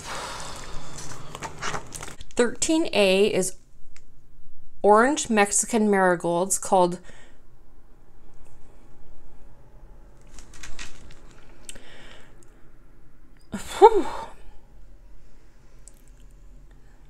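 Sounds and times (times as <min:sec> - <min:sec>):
woman breathing: 0:00.0 - 0:01.6, 0:07.0 - 0:07.6, 0:11.7 - 0:12.8.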